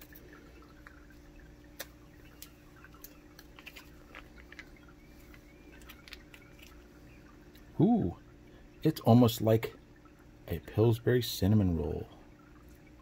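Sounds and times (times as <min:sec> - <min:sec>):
foil packet crinkling: 0:03.4 - 0:06.8.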